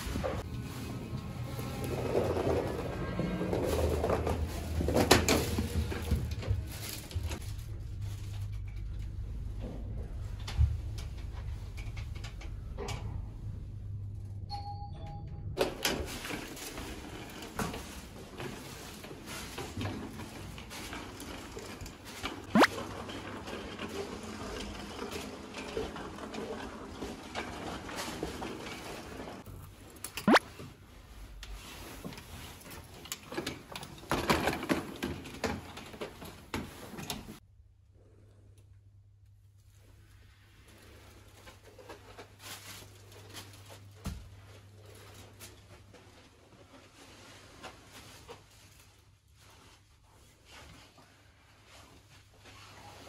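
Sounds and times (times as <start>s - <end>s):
suitcase wheels rolling on carpet: 0.0s - 12.4s, 15.6s - 37.4s
low room hum: 0.0s - 53.0s.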